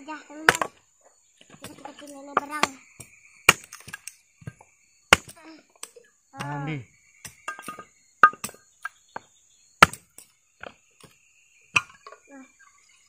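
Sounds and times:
hatchet chopping wood: 0.4s - 0.8s, 1.5s - 6.6s, 7.2s - 12.1s.

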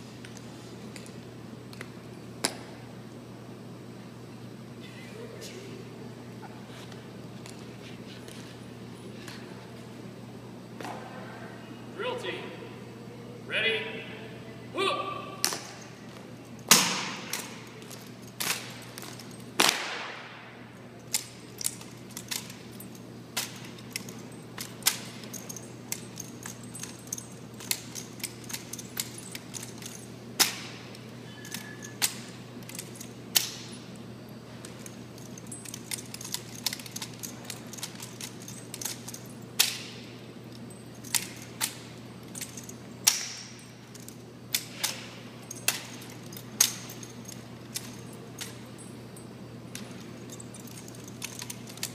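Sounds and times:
rifles slapped and caught: 1.8s - 2.8s, 15.4s - 20.5s, 23.3s - 25.6s, 27.6s - 33.8s, 36.2s - 40.0s, 42.4s - 48.6s
loud smacks echoing in hall: 19.6s - 20.4s.

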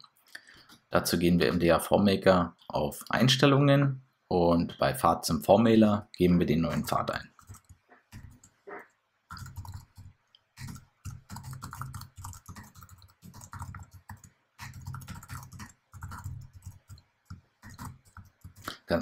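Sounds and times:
typing on computer keyboard: 6.8s - 8.6s, 9.3s - 18.8s.

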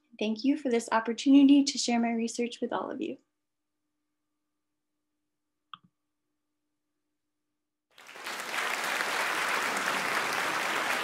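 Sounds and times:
applause: 7.9s - 11.0s.

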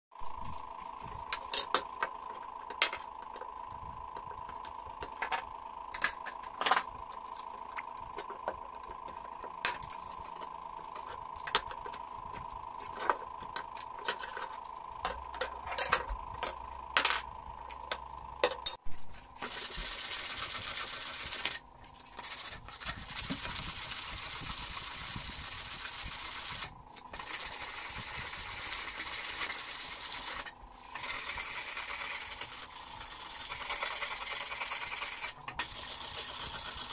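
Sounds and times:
faint steady whine: 0.2s - 36.9s
sandpaper rubbing on steel blade: 19.4s - 36.9s.

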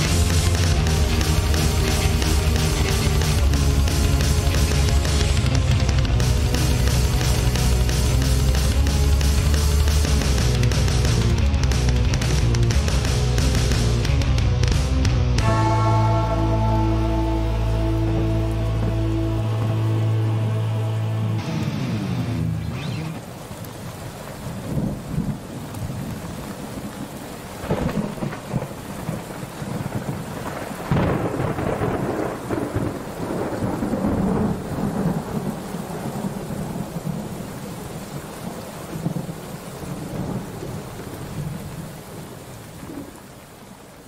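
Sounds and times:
steady rain: 0.0s - 44.0s
rolling thunder: 24.6s - 37.8s.

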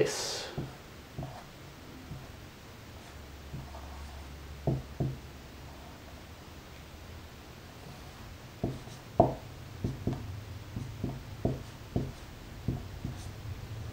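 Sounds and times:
marker tapping on whiteboard: 0.6s - 1.4s, 4.6s - 5.2s, 8.6s - 13.3s.

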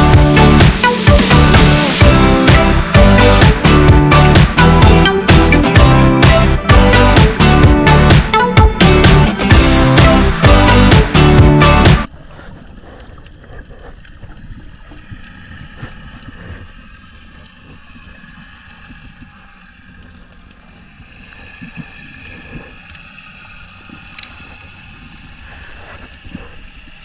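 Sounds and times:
muffled underwater rumble: 12.1s - 27.0s
small clicks and crackles: 12.6s - 27.0s.

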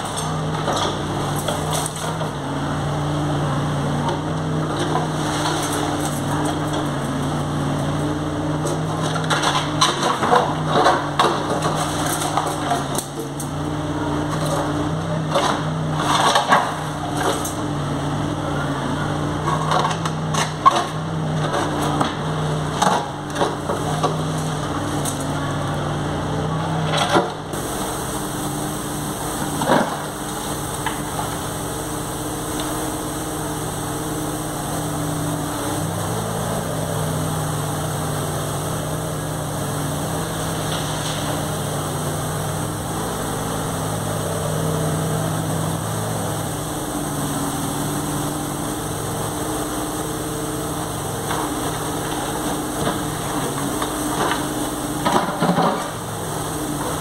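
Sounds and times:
diesel engine running: 0.0s - 57.0s
bucket scraping concrete rubble: 26.9s - 45.1s, 51.1s - 56.1s.

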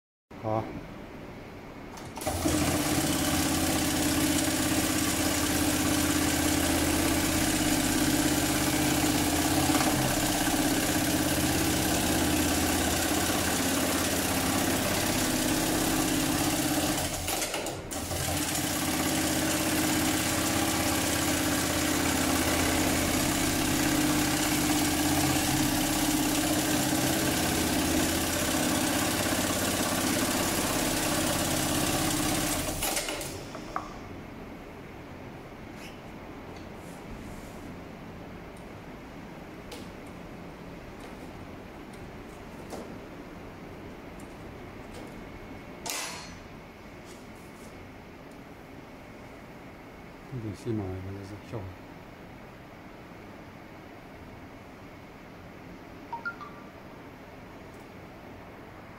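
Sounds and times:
sewing machine stitching leather: 2.0s - 33.4s.

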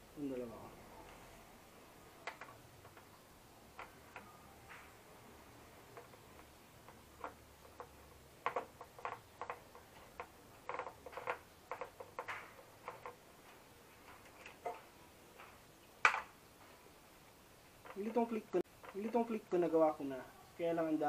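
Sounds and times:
hand tools clicking on plastic: 2.2s - 4.9s, 5.8s - 16.3s, 17.8s - 19.7s.

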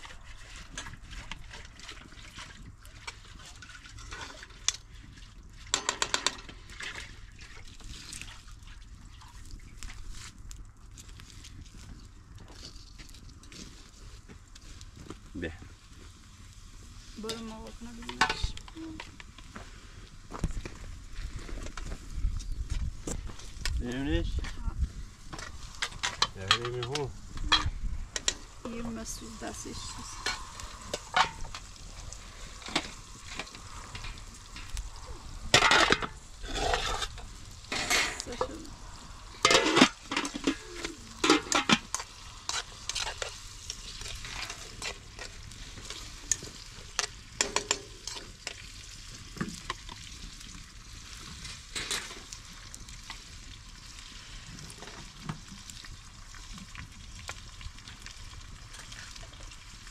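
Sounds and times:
food frying in oil: 0.0s - 59.9s
metal pots and lids clattering: 5.7s - 7.0s, 25.4s - 28.4s, 29.8s - 31.6s, 35.6s - 38.6s, 39.4s - 43.4s, 44.2s - 48.2s.

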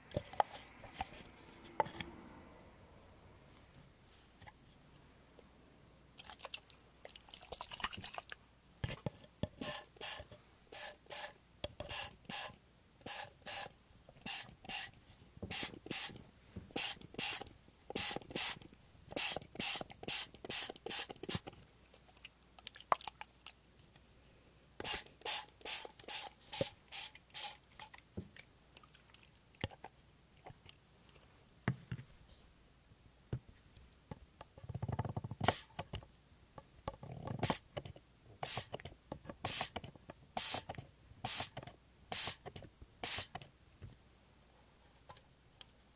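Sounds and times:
spray bottle misting: 9.6s - 10.2s, 10.8s - 12.5s, 13.1s - 18.6s, 19.2s - 21.4s, 24.8s - 27.7s, 35.4s - 35.7s, 38.4s - 38.7s, 39.5s - 39.8s, 40.4s - 40.7s, 41.3s - 42.4s, 43.0s - 43.3s.

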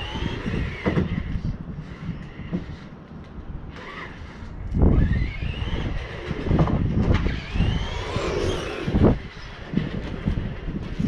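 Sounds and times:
electric motor whining: 0.0s - 2.9s, 3.6s - 11.0s
low rumbling buffets: 0.0s - 11.0s.

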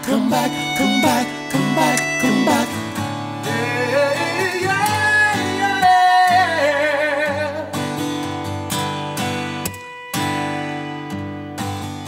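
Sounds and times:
man singing: 0.0s - 8.0s
acoustic guitar strumming: 0.0s - 12.0s.

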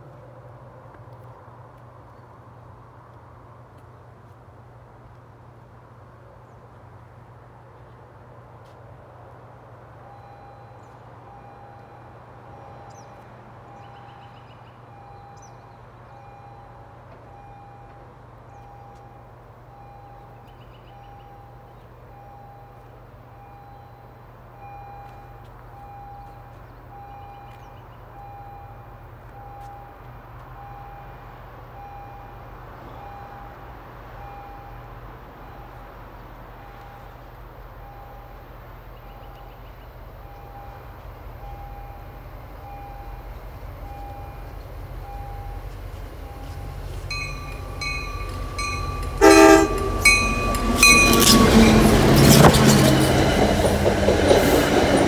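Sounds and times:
train hum: 0.0s - 55.0s
electronic warning beeps: 43.8s - 45.6s.

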